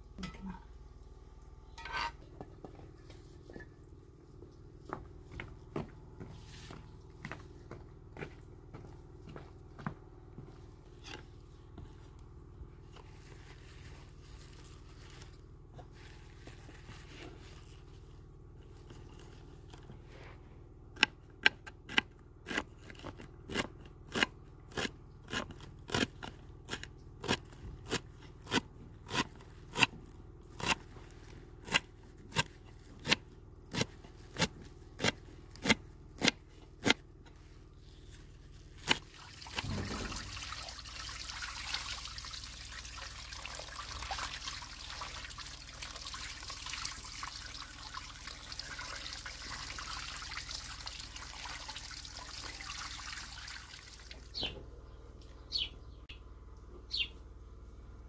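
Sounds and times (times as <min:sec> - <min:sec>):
knife chopping greens on wood: 0:31.6 - 0:37.0.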